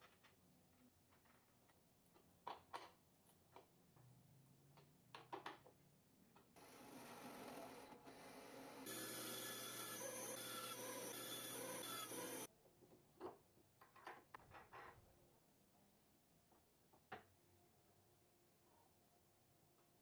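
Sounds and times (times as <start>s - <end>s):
machine whirring: 6.6s - 12.5s.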